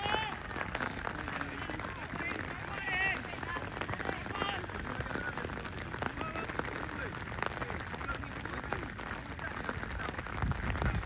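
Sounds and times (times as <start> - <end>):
distant shouts and calls: 0.0 - 8.3.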